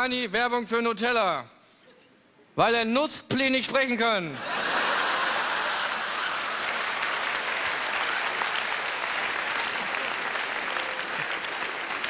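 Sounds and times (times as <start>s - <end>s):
audience laughing: 4.4s - 7.2s
audience applauding: 4.6s - 12.0s.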